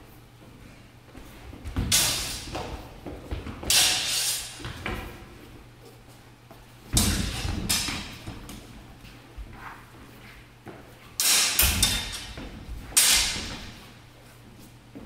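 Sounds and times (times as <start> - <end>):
feet stamping and sliding on floor: 0.1 - 11.2
swords clashing and scraping: 3.6 - 4.6, 11.2 - 12.4, 13.0 - 13.8.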